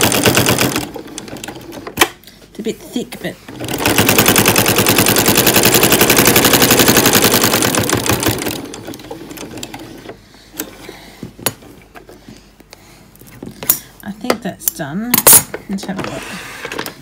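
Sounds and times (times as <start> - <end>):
sewing machine stitching: 0.0 - 1.9, 3.5 - 10.2.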